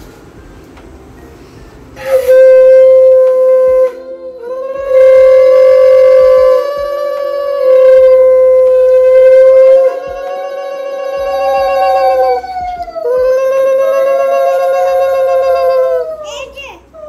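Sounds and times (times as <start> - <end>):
conch shell blasts: 2.0 - 12.4.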